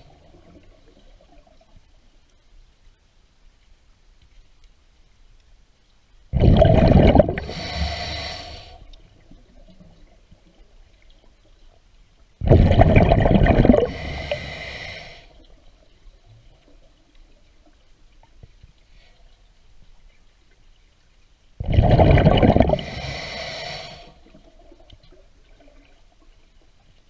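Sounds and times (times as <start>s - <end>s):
scuba regulator breathing bubbles: 6.4s - 9.0s, 12.4s - 15.4s, 21.6s - 24.5s.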